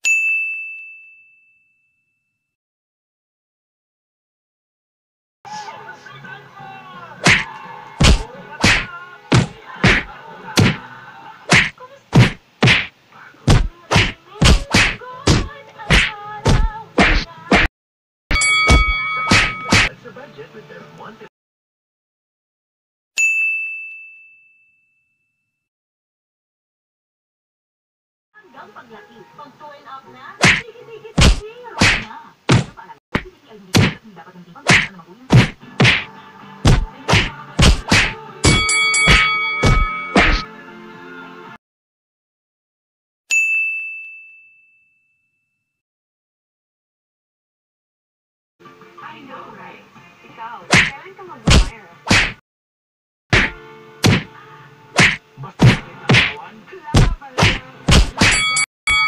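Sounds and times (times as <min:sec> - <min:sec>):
faint background music: 0:05.5 - 0:17.7, 0:18.4 - 0:21.3, 0:28.4 - 0:41.6, 0:48.6 - 0:52.3, 0:53.4 - 0:58.5
punch and whack sound effects: 0:07.2 - 0:10.8, 0:11.5 - 0:12.9, 0:13.5 - 0:17.7, 0:18.6 - 0:19.9, 0:30.4 - 0:30.6, 0:31.2 - 0:34.0, 0:34.7 - 0:40.5, 0:50.7 - 0:52.4, 0:53.3 - 0:54.3, 0:55.0 - 0:56.4, 0:57.0 - 0:58.4.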